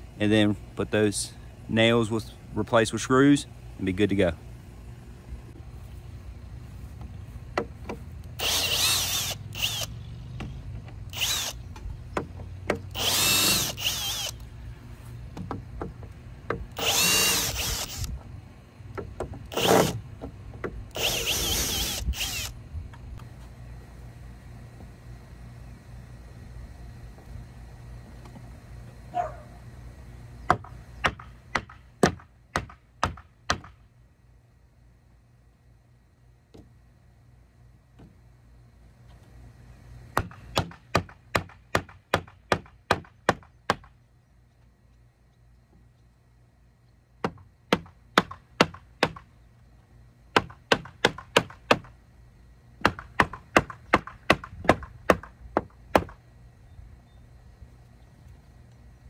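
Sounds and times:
knocks on wooden boards: 0:15.3 - 0:16.6, 0:30.5 - 0:33.8, 0:40.2 - 0:43.9, 0:47.2 - 0:49.3, 0:50.4 - 0:51.9, 0:52.8 - 0:56.2.

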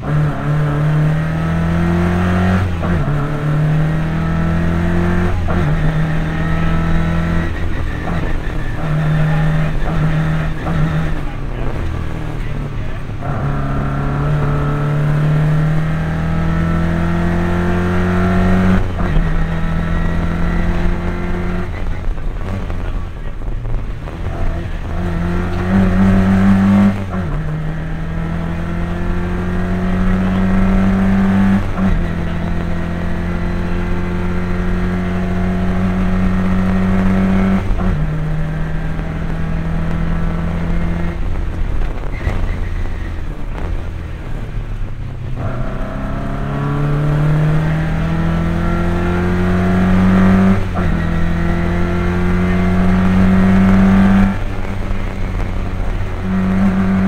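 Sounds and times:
rally car engine accelerating: 0:00.0 - 0:57.0.

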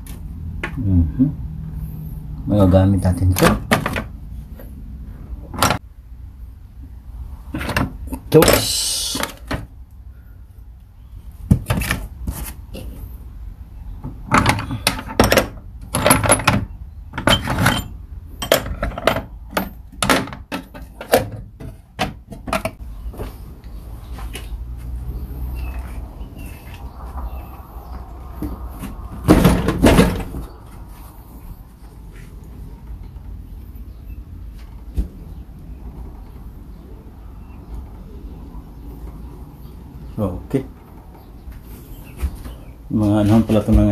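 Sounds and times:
tools and gear knocking and clinking: 0:14.0 - 0:22.8.

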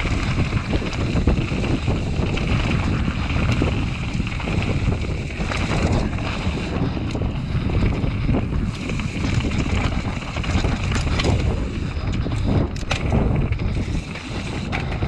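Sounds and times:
bike rattling over bumps: 0:00.0 - 0:15.0
bike tyres rumbling on rough ground: 0:00.0 - 0:15.0
wind rushing over microphone: 0:00.0 - 0:15.0.

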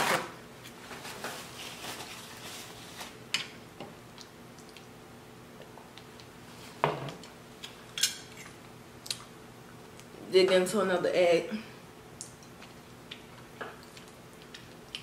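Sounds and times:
paper napkin rustling: 0:00.0 - 0:03.2.

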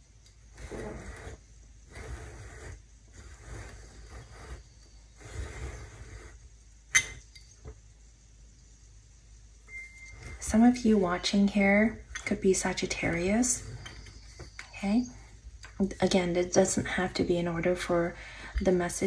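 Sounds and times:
scraping strokes: 0:00.5 - 0:06.6, 0:12.4 - 0:14.6.

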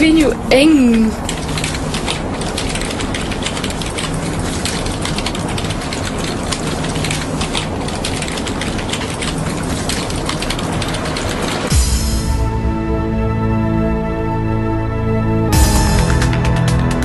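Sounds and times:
steady low hum: 0:00.0 - 0:17.0
keyboard typing clicks: 0:00.9 - 0:11.7.

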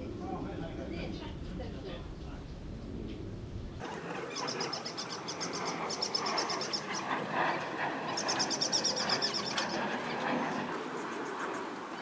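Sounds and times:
birds chirping in trills: 0:03.8 - 0:12.0.

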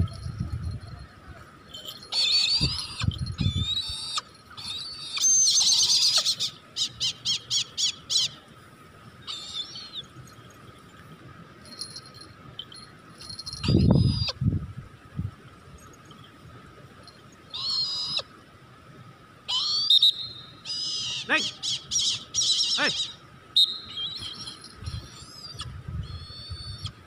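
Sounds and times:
bird of prey calling: 0:01.9 - 0:08.4, 0:09.2 - 0:10.1, 0:17.5 - 0:18.3, 0:19.5 - 0:27.0.

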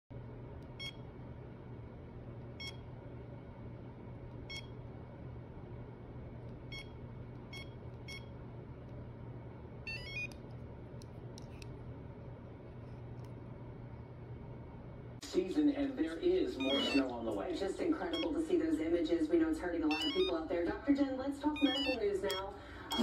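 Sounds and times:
short electronic beeps: 0:16.6 - 0:17.0, 0:19.9 - 0:20.3, 0:21.6 - 0:23.0.

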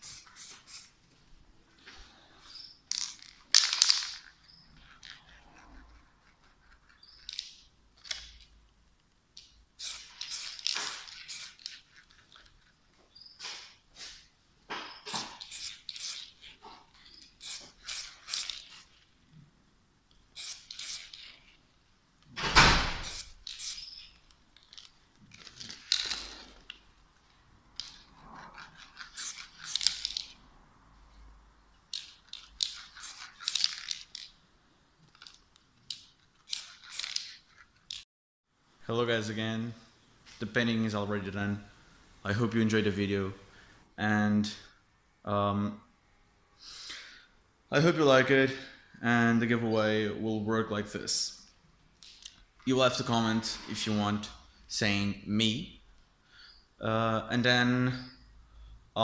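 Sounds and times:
spray paint can bursts: 0:00.0 - 0:01.0, 0:09.8 - 0:11.9, 0:15.0 - 0:16.5, 0:17.3 - 0:18.8, 0:20.3 - 0:21.5, 0:22.8 - 0:24.2, 0:28.8 - 0:30.4, 0:31.9 - 0:34.2, 0:36.0 - 0:37.4.

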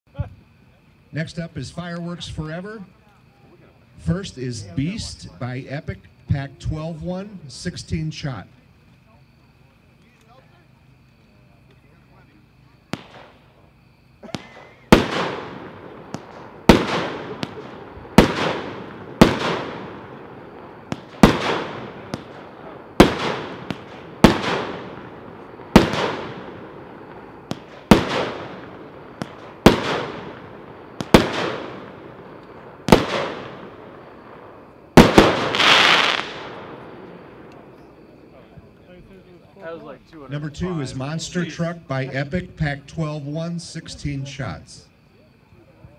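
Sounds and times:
fireworks bangs: 0:12.1 - 0:44.8
fireworks crackling burst: 0:12.9 - 0:38.8.

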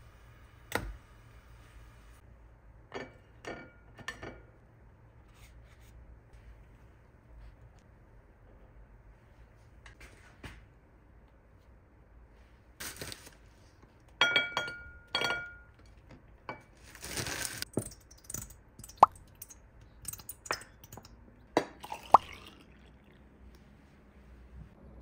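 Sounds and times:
tableware clinking on a plate: 0:02.9 - 0:04.5, 0:14.2 - 0:16.7
syrup dripping: 0:17.7 - 0:23.6.

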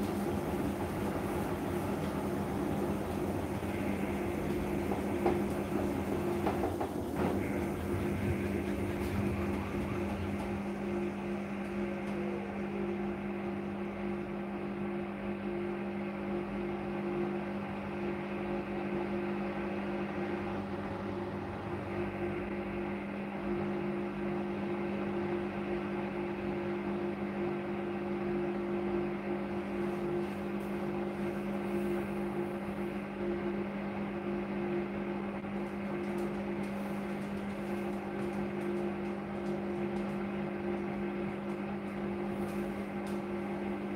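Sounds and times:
laundry tumbling: 0:00.0 - 0:12.3, 0:35.5 - 0:43.9
falling whine of drum: 0:00.0 - 0:14.1
washing machine motor humming: 0:00.0 - 0:43.9.

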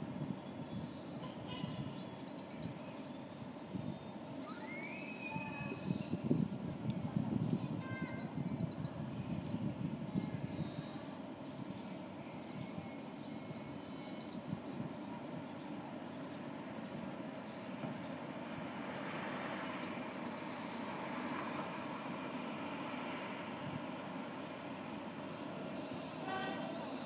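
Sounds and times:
small birds chirping: 0:00.2 - 0:09.6, 0:10.2 - 0:18.3, 0:19.8 - 0:27.0
traffic hum: 0:14.4 - 0:27.0
vehicle passing: 0:18.4 - 0:20.0.

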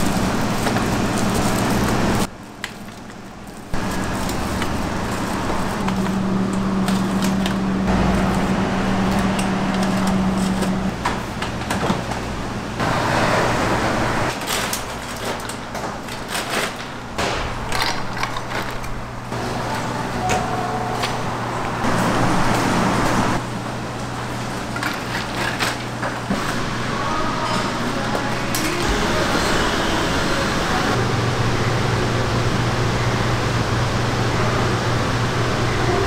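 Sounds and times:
utensils clicking and clattering: 0:00.0 - 0:12.3, 0:14.3 - 0:19.0, 0:24.5 - 0:26.6, 0:27.4 - 0:29.0.

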